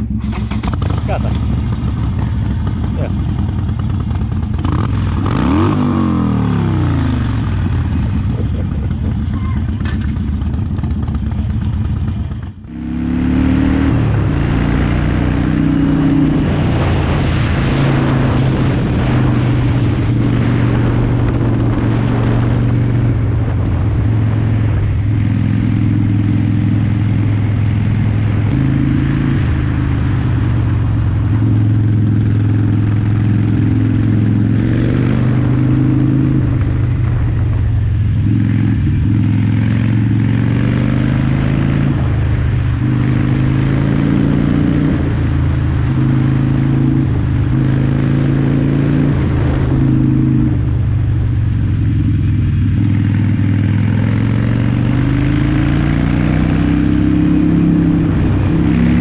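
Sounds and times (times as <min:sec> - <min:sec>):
motorcycle engine running: 0:00.0 - 0:59.0
wind noise on microphone: 0:12.9 - 0:59.0.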